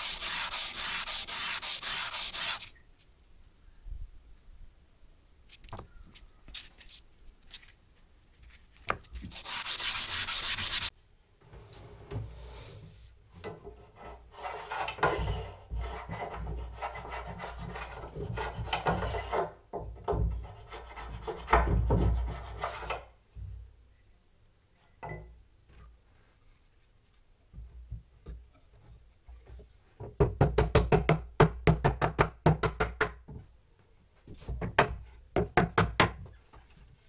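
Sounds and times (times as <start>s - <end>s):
plane scrubbing on sandpaper: 0.0s - 2.7s, 9.3s - 10.9s
plane strokes on wooden board: 0.0s - 2.7s, 9.3s - 10.9s.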